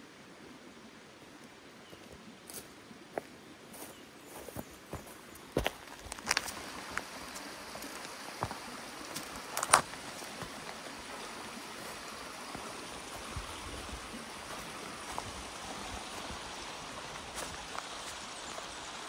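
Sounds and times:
creek water running: 0.0s - 19.0s.

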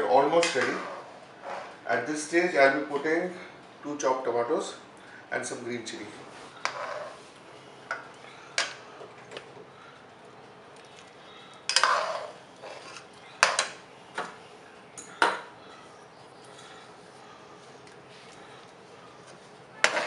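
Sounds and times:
metal spoon clinking on pan: 11.7s - 12.3s, 13.4s - 13.8s.

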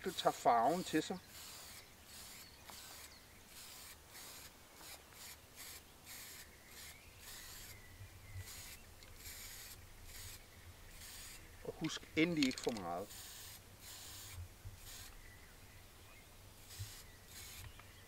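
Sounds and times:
spray paint can hissing: 1.3s - 7.8s, 8.4s - 15.2s, 16.6s - 17.8s.

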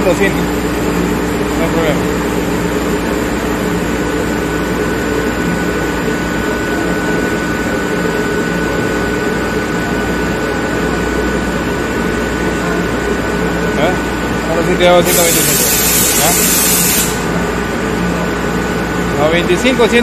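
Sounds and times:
air compressor running: 0.0s - 20.0s.

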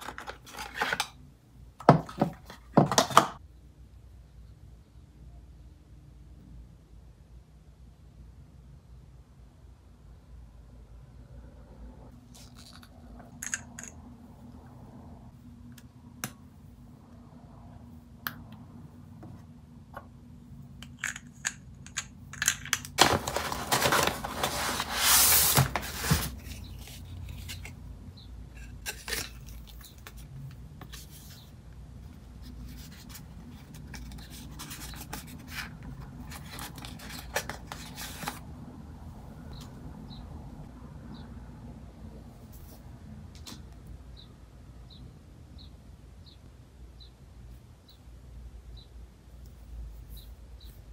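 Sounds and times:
paper rustling and crinkling: 23.0s - 27.8s.

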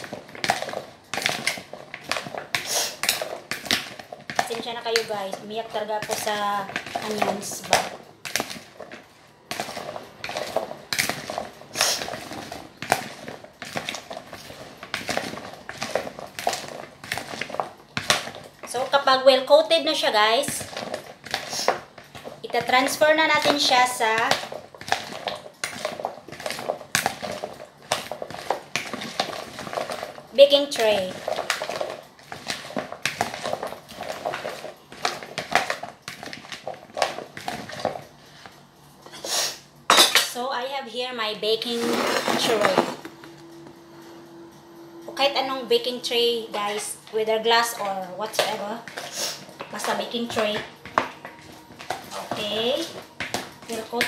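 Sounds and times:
spoon scraping plastic bowl: 0.0s - 18.4s, 41.6s - 43.2s, 48.4s - 53.9s
vegetables clattering: 0.0s - 39.3s, 41.5s - 43.4s, 45.8s - 54.0s
metal spoon scraping plastic bowl: 41.6s - 43.2s, 47.8s - 54.0s.

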